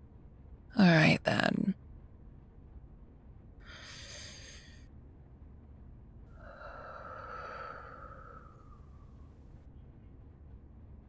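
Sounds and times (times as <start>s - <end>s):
woman breathing: 3.6s - 4.9s, 6.3s - 9.5s
woman's long nasal sigh: 6.4s - 9.0s.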